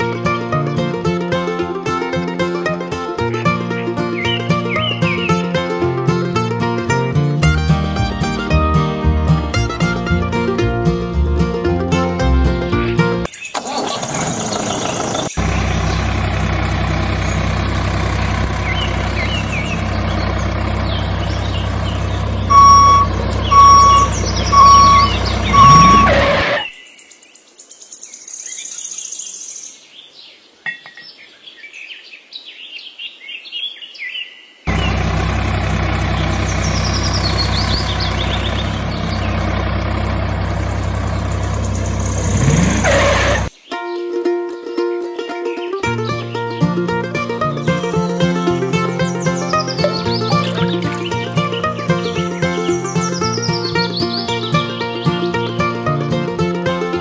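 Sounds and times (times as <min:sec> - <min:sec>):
tractor engine running: 0:00.0 - 0:26.6, 0:34.7 - 0:43.6, 0:45.8 - 0:57.0
birds chirping: 0:03.8 - 0:06.2, 0:12.6 - 0:56.0
beeps: 0:22.5 - 0:26.7.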